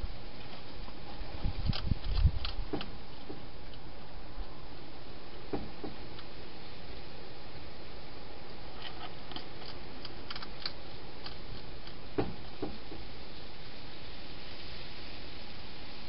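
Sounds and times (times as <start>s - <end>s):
steady hiss: 0.0s - 16.0s
hedgehog feeding clicks and crunches: 0.4s - 3.8s, 8.4s - 12.1s
sharp knocks: 5.5s - 6.0s, 12.2s - 13.0s.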